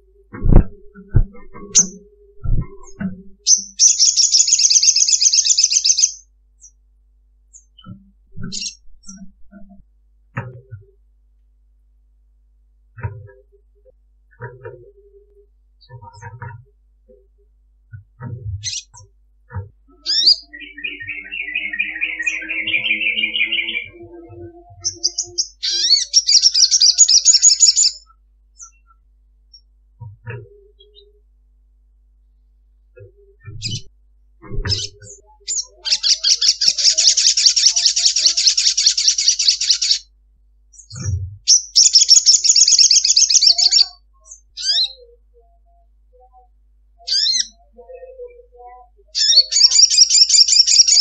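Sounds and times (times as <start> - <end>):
bird singing trills: 0.0 - 6.8, 7.5 - 9.8, 19.9 - 31.2, 33.0 - 33.9, 34.5 - 40.1, 40.7 - 51.0.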